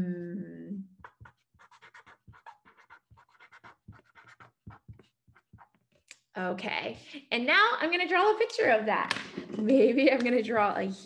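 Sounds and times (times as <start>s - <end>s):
marker writing on paper: 1.0s - 6.0s.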